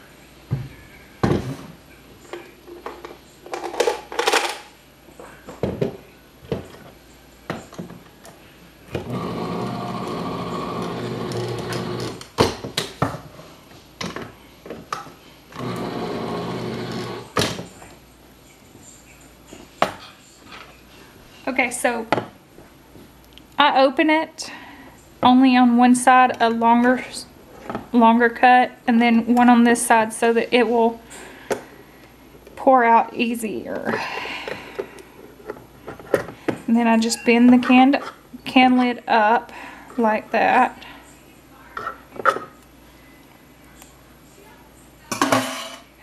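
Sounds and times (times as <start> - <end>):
electric can opener running: 8.9 - 12.3, 15.5 - 17.4.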